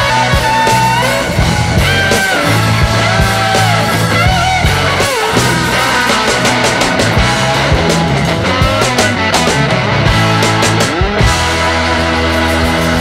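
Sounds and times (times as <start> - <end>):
rock music with bass and guitar: 0.0 - 13.0.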